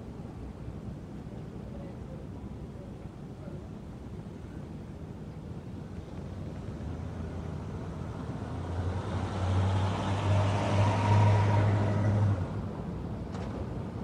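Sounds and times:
vehicle passing: 6.6s - 12.8s.

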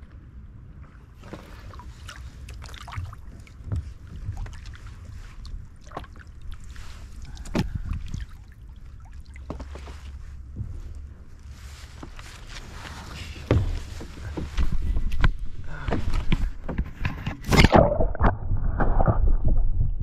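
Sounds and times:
paddle splashing through water: 0.8s - 19.1s
water dripping: 1.6s - 10.1s.

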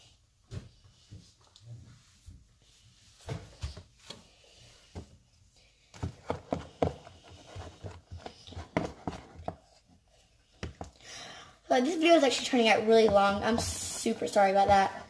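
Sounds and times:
stick stirring thick slime: 11.7s - 15.0s.

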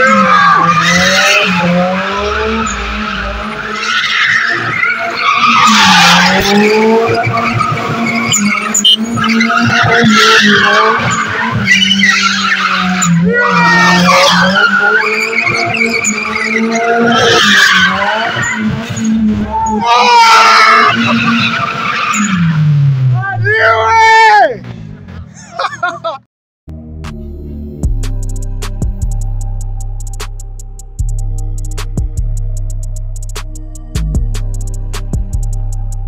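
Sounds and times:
tyres screeching on pavement: 0.0s - 22.6s
car engine at high revs: 0.0s - 23.2s.

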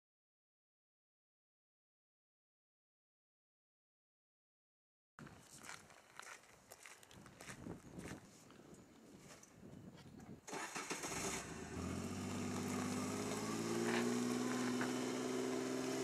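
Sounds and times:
utility vehicle engine running: 10.5s - 16.0s.

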